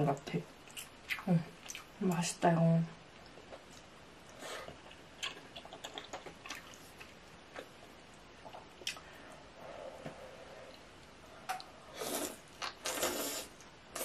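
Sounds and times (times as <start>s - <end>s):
soft chewing: 0.6s - 2.2s, 3.2s - 9.1s.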